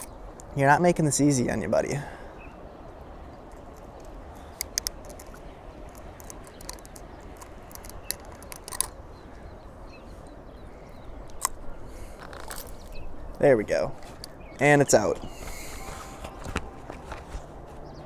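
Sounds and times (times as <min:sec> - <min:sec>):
sharp clicks of lure hooks: 0:03.5 - 0:09.0, 0:11.2 - 0:11.6.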